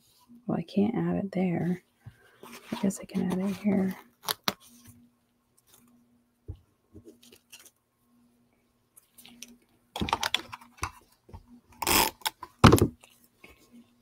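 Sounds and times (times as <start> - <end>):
scrape: 2.1 - 4.0.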